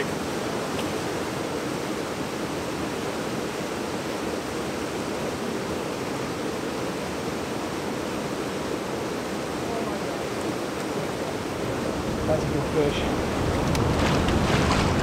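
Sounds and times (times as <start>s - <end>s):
creek water rushing over rocks: 0.0s - 15.0s.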